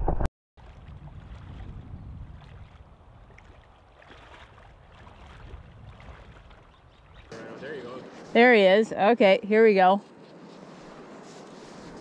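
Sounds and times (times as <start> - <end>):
wind on microphone: 0.0 - 7.4
river flowing: 2.4 - 9.4.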